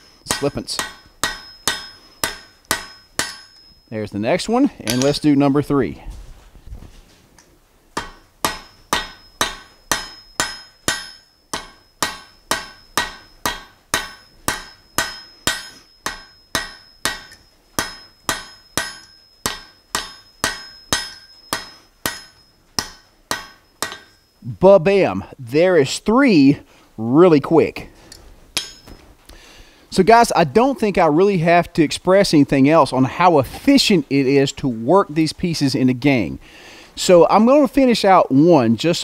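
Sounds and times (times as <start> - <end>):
hammer striking steel on anvil: 0.0 - 3.9, 4.8 - 5.3, 8.0 - 24.4, 28.6 - 29.0.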